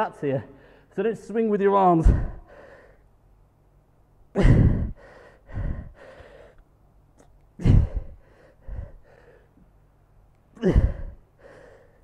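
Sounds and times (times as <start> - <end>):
man breathing hard: 2.0 - 3.2, 4.4 - 6.7, 7.6 - 9.8, 10.6 - 12.0.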